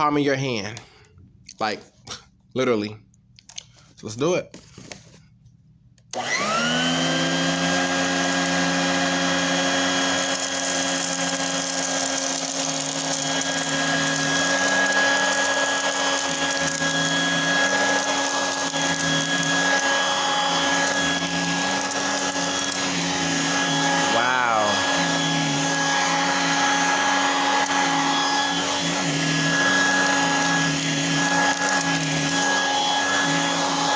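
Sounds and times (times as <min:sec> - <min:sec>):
hand vacuum motor whining: 0:06.1 - 0:33.9.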